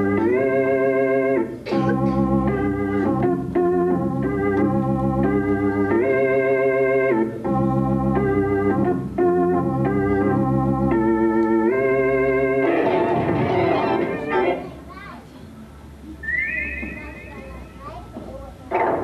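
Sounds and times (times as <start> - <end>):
electronic organ melody: 0.0 - 14.7.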